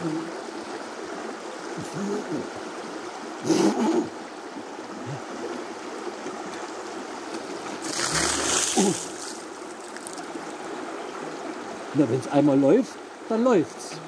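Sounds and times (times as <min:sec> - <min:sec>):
creek running over rocks: 0:00.0 - 0:14.0
water splashing onto rocks: 0:06.2 - 0:10.6.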